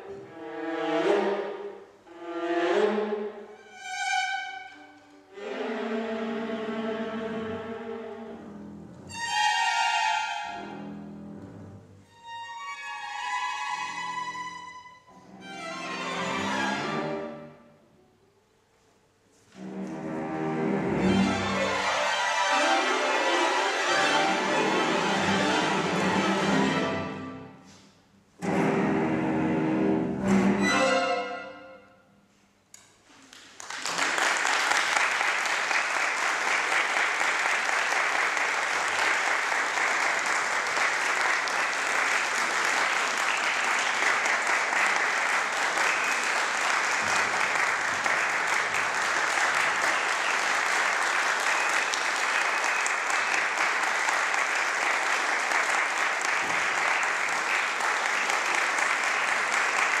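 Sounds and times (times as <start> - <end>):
audience applause: 33.3 - 60.0.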